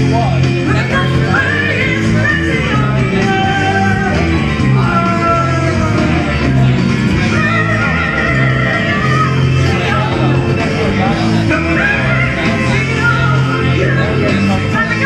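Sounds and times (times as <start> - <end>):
rock backing track: 0.0 - 15.0
woman singing into a microphone: 0.6 - 6.3, 7.2 - 10.0, 11.5 - 15.0.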